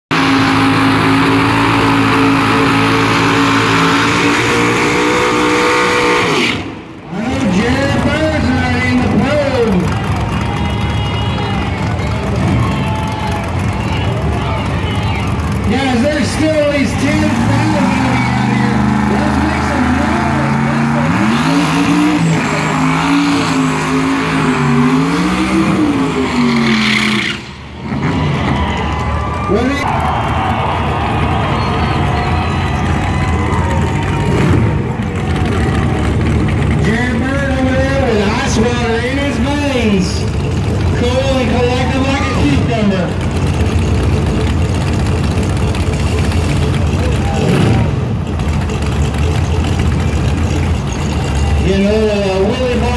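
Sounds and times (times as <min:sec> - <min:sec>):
race car engine at high revs: 0:00.1 - 0:28.9, 0:29.5 - 0:52.9
tyres spinning: 0:39.8 - 0:52.9.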